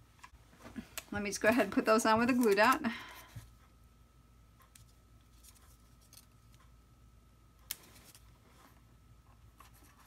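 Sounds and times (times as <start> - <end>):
paper backing rustling and peeling: 2.2 - 2.9.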